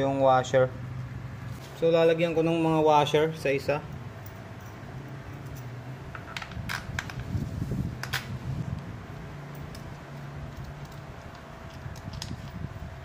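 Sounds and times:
steady low hum: 0.0 - 13.0
small metallic clicks: 9.5 - 12.6.

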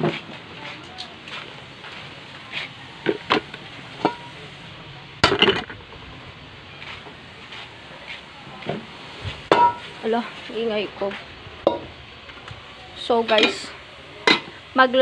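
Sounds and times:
kitchenware clattering: 5.2 - 5.8, 9.5 - 9.9.

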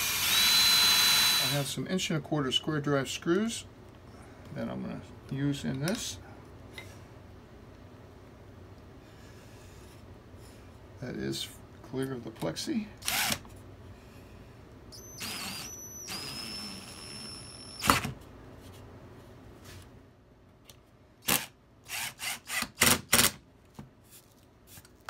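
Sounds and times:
cordless drill whining: 0.0 - 1.7, 13.0 - 13.4, 14.9 - 18.0
drill click: 15.0 - 18.1.

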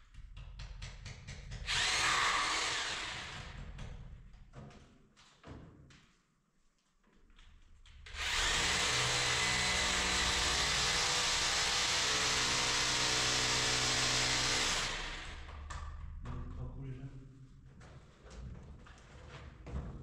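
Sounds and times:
power tool motor running: 1.7 - 3.5, 8.2 - 15.5.

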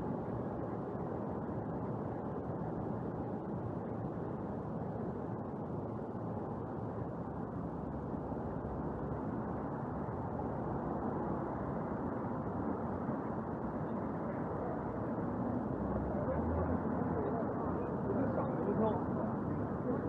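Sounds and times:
traffic rumble: 7.9 - 20.0.

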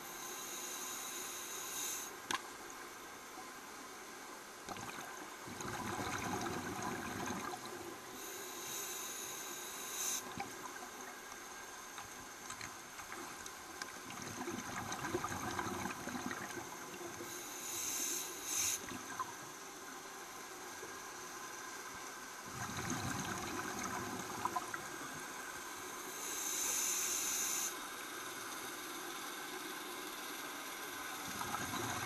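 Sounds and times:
short high hiss of air: 8.2 - 10.3, 17.4 - 18.9, 26.2 - 27.8.

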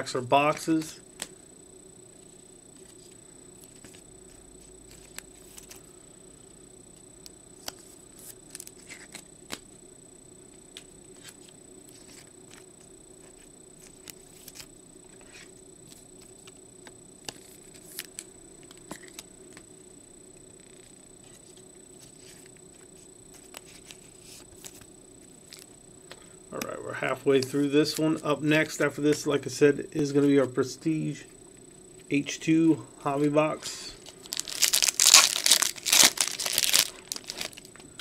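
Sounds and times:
faint background hum: 0.0 - 38.0.

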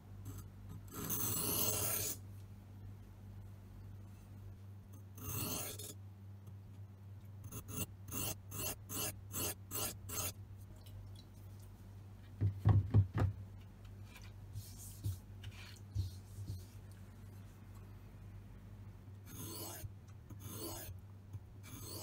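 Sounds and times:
dull knocks on wood: 12.4 - 13.4
blade scraping on whetstone: 19.3 - 19.8, 20.4 - 20.9, 21.7 - 22.0.

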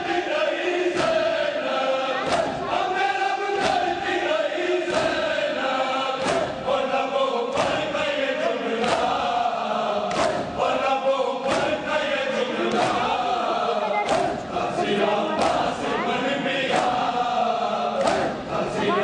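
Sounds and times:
men chanting in unison: 0.0 - 19.0
hands slapping bare chests: 2.2 - 2.6, 3.6 - 3.9, 4.9 - 5.2, 6.2 - 6.6, 7.5 - 7.9, 8.8 - 9.2, 10.1 - 10.6, 11.4 - 11.8, 12.7 - 13.2, 14.0 - 14.4, 15.4 - 15.7, 16.7 - 17.1, 18.0 - 18.4.

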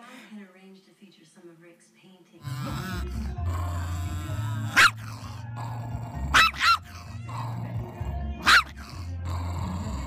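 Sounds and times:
background music: 2.5 - 10.0
small dog yapping: 4.7 - 5.2, 6.3 - 7.1, 8.4 - 8.9.

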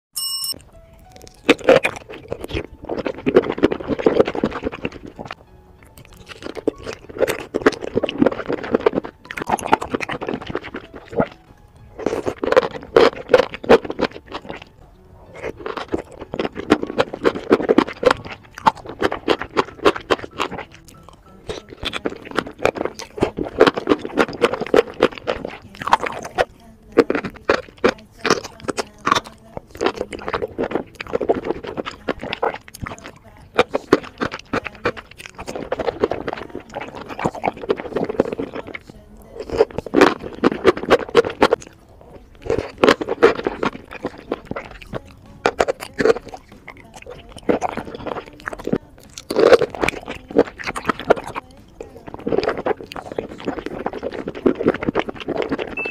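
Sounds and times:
person chewing: 0.5 - 55.9.

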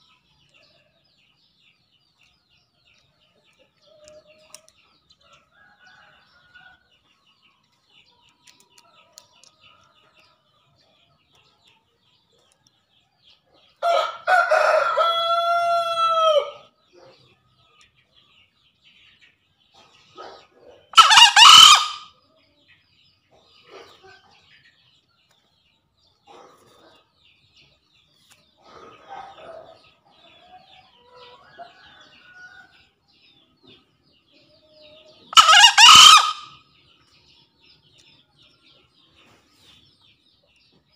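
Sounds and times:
junglefowl crowing: 13.8 - 16.6, 20.9 - 22.1, 35.3 - 36.6.

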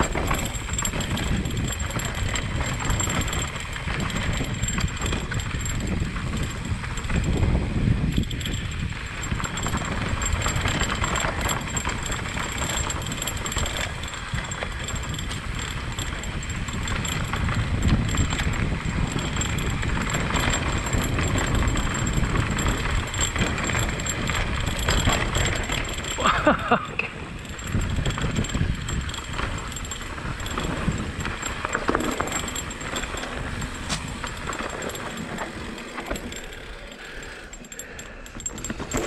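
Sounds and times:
rumble and rattling on bumpy trail: 0.0 - 39.0.

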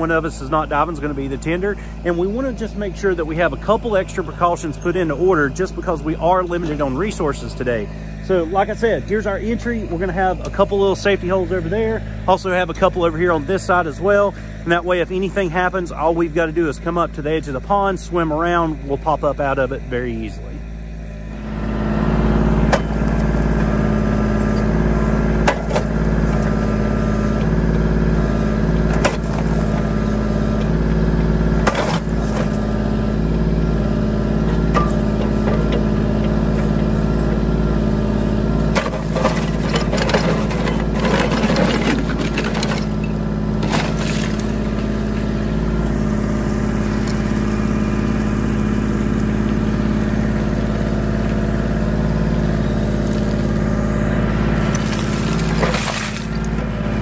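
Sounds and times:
tractor diesel engine running: 0.0 - 57.0
ice cracking and crunching: 54.6 - 56.5.

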